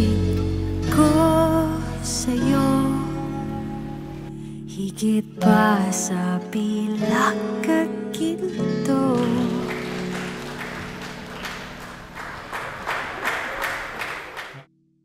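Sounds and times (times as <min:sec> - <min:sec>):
person singing: 0:00.0 - 0:04.0, 0:04.7 - 0:11.4
acoustic guitar: 0:00.0 - 0:12.2
audience applause: 0:09.1 - 0:14.7.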